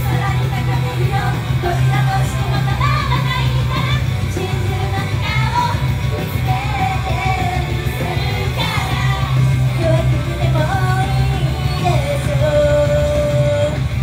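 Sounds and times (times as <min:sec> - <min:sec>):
pop rock song through loudspeakers: 0:00.0 - 0:14.0
women singing: 0:00.0 - 0:14.0.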